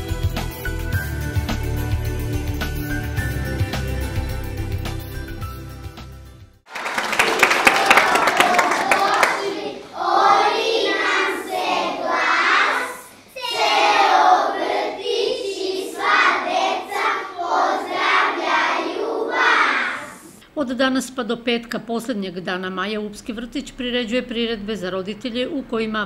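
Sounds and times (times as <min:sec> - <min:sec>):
hand claps: 0:06.7 - 0:09.5
children singing: 0:07.8 - 0:20.4.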